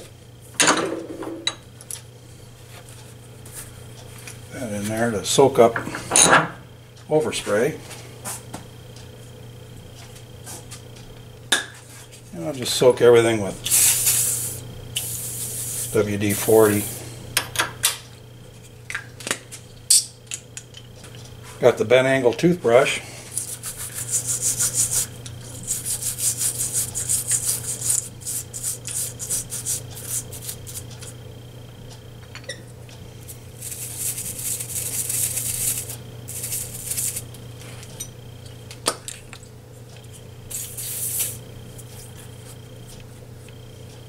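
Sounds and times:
steady low hum: 0:00.0 - 0:44.0
toothbrush scrubbing metal: 0:23.3 - 0:31.1, 0:33.6 - 0:37.3.

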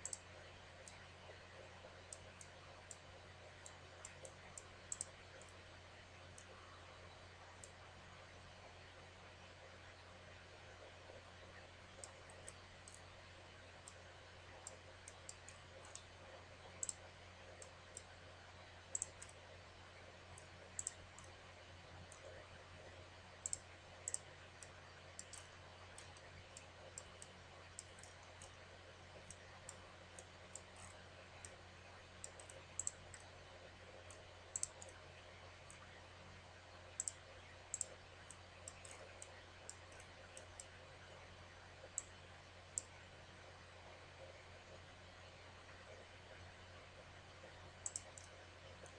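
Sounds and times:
computer mouse clicking: 0:00.0 - 0:01.0, 0:01.6 - 0:05.6, 0:06.4 - 0:06.8, 0:07.6 - 0:07.8, 0:11.9 - 0:13.1, 0:13.8 - 0:14.0, 0:14.6 - 0:18.2, 0:18.9 - 0:19.5, 0:20.3 - 0:21.4, 0:22.0 - 0:35.0, 0:36.9 - 0:41.2, 0:41.8 - 0:42.9, 0:47.4 - 0:48.9
faint electrical hum and hiss: 0:00.0 - 0:48.9.

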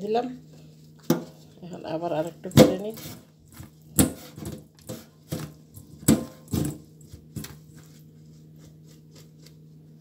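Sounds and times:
knocks and tissue rustles: 0:00.4 - 0:01.6, 0:02.2 - 0:10.0.

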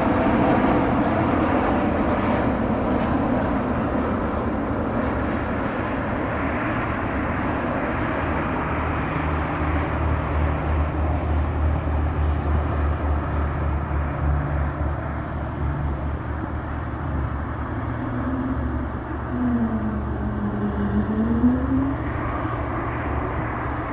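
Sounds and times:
jet engines landing: 0:00.0 - 0:23.9
engine tone gliding down: 0:08.3 - 0:23.9.

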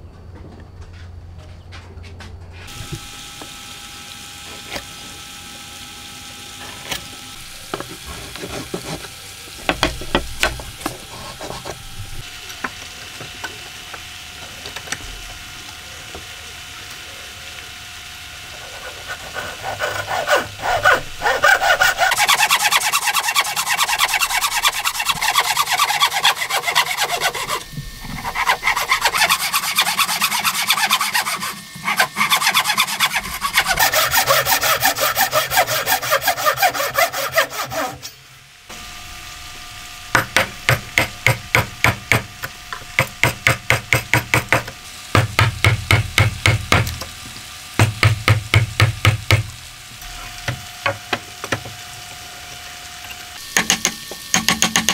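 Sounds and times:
hand saw cutting wood: 0:06.5 - 0:11.9, 0:18.5 - 0:38.2, 0:43.0 - 0:47.0, 0:53.6 - 0:54.9
chisel being struck: 0:40.1 - 0:46.9, 0:47.8 - 0:49.5, 0:53.5 - 0:54.9.

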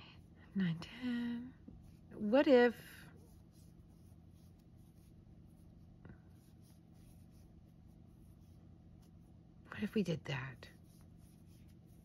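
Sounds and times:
crochet hook rubbing yarn: 0:01.7 - 0:09.3, 0:10.5 - 0:12.0.

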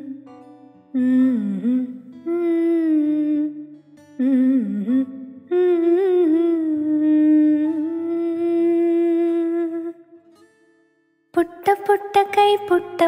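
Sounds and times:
person humming a lullaby melody: 0:00.0 - 0:10.0
soft musical accompaniment: 0:00.0 - 0:13.0.

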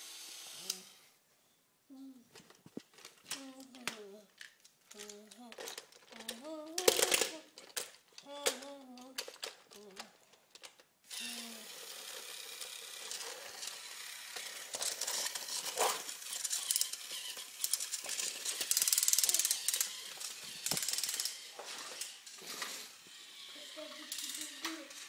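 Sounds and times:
toy motors whirring: 0:00.0 - 0:01.1, 0:02.4 - 0:25.0
plastic toy pieces knocking: 0:02.7 - 0:10.8, 0:13.0 - 0:22.2.

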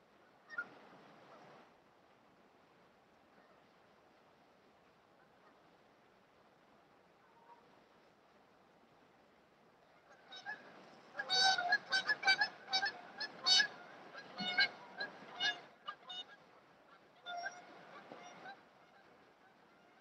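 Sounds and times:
geese honking: 0:10.0 - 0:20.0.

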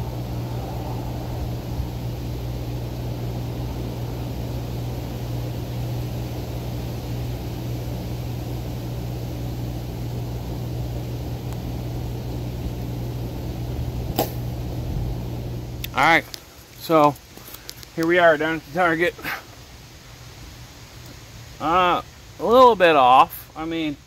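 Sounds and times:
low background rumble: 0:00.0 - 0:19.0
constant hum: 0:00.0 - 0:24.0.

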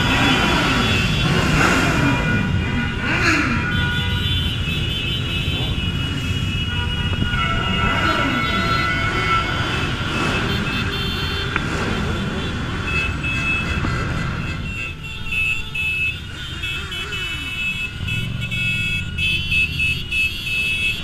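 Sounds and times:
motorcycle throttle revs: 0:00.0 - 0:03.9
motorcycle engines running: 0:00.0 - 0:15.2
horns sounding: 0:00.0 - 0:21.0.

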